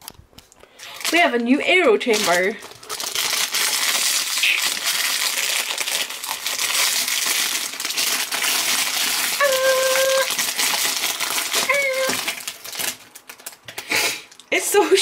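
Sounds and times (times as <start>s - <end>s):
plastic packaging crinkling: 0.0s - 14.6s.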